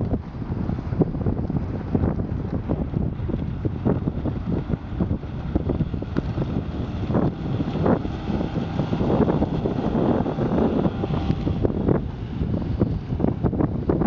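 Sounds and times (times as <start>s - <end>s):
outboard motor running: 0.0s - 14.0s
wind buffeting microphone: 0.0s - 14.0s.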